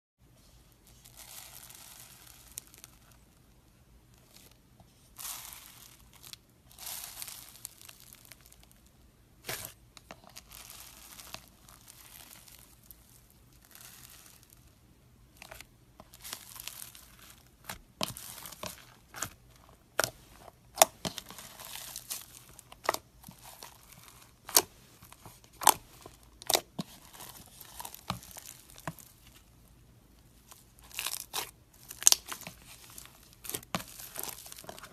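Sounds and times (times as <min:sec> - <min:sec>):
slime beads crunching: 0:01.0 - 0:03.1, 0:05.2 - 0:08.8, 0:09.4 - 0:14.7, 0:15.5 - 0:29.6, 0:30.4 - 0:34.9
slime popping: 0:30.8 - 0:34.8.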